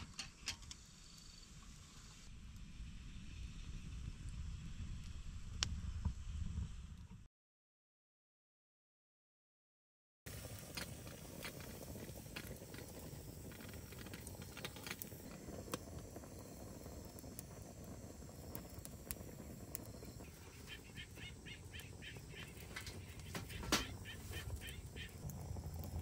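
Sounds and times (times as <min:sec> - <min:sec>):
small clicks and crackles: 0:10.3 - 0:26.0
steady low rumble: 0:11.3 - 0:26.0
bird calling repeated notes: 0:20.5 - 0:25.2.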